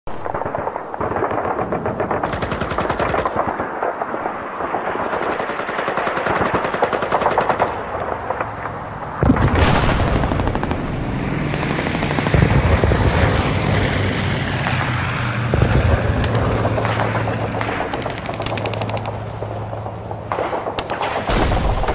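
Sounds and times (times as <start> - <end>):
rapid machine-gun fire: 0.4 - 8.3, 9.2 - 13.4, 15.6 - 21.9
low steady drone: 7.2 - 21.9
heavy blast: 7.7 - 21.9.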